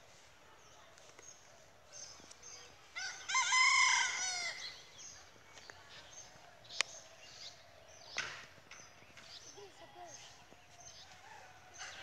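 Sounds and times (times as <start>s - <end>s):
rooster crowing: 3.0s - 4.6s.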